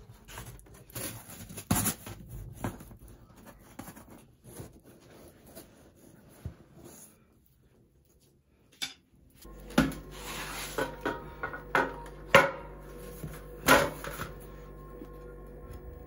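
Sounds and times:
steady low hum: 9.4s - 16.0s.

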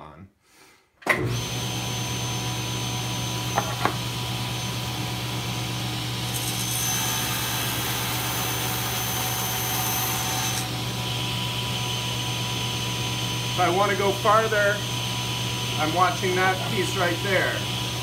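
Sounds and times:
table saw running: 1.2s - 18.0s
saw blade cutting wood: 6.3s - 10.8s.

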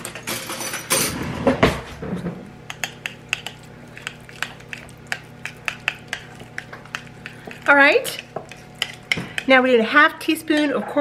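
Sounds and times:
utensils clattering in drawer: 0.0s - 1.3s.

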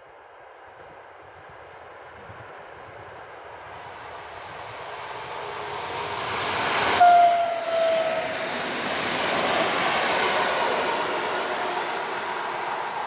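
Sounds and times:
train running noise: 0.0s - 13.0s
train horn blast: 6.9s - 8.6s.

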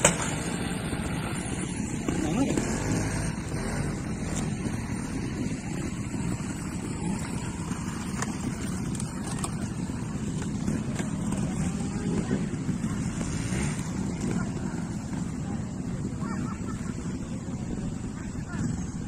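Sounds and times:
motorcycle engine rumble: 0.0s - 19.0s
wind buffeting microphone: 15.6s - 19.0s.

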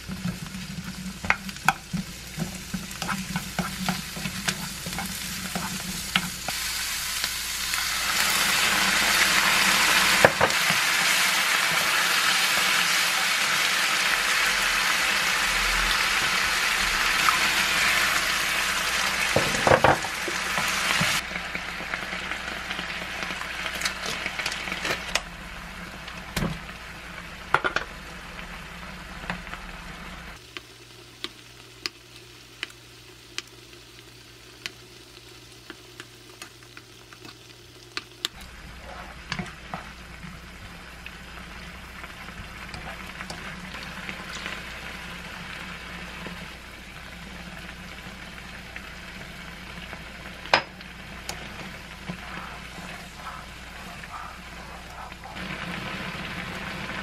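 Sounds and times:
sauce sizzling in a frying pan: 0.0s - 57.0s
wooden spoon knocking on pan: 19.3s - 20.2s.

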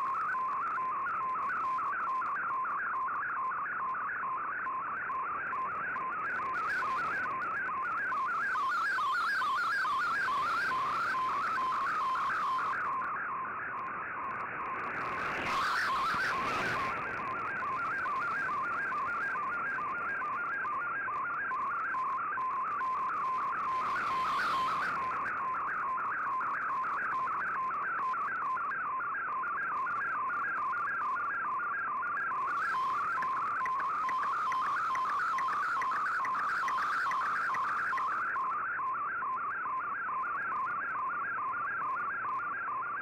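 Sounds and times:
static crackles: 4.6s - 31.2s, 32.1s - 38.6s
warbling digital data tone: 14.4s - 19.7s, 23.0s - 25.4s, 32.4s - 38.4s
radio band hiss: 14.8s - 17.3s.

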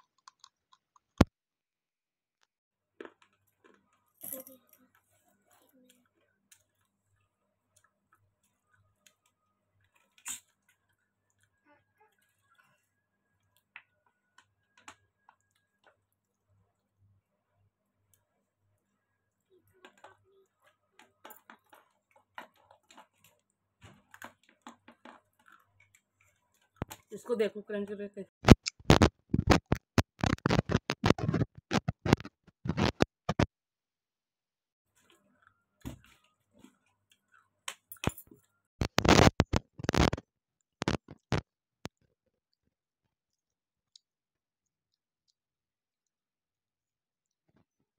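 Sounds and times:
crunching and chewing: 0.0s - 1.2s, 3.0s - 4.2s.

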